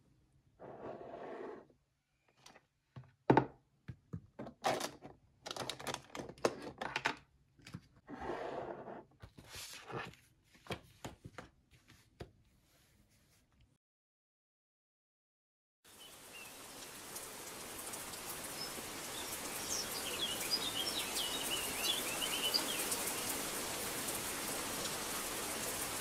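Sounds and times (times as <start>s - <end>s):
objects knocking and clicking: 3.0s - 8.0s.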